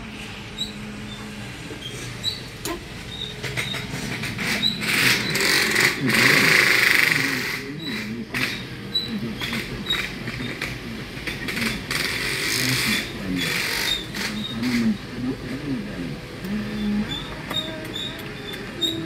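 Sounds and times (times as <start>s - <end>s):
car engine and tyre noise: 0.0s - 19.0s
knocks and rattles over bumps: 2.0s - 15.2s.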